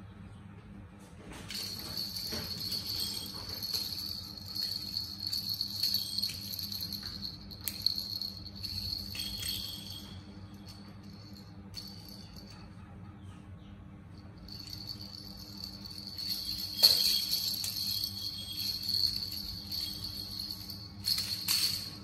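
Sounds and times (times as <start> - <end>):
plastic baby rattle shaking: 1.6 - 10.0.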